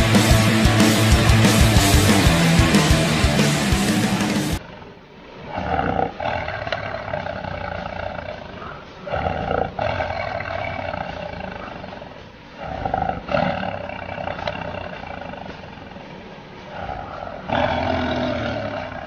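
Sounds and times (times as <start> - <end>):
big cats roaring: 5.4 - 19.0.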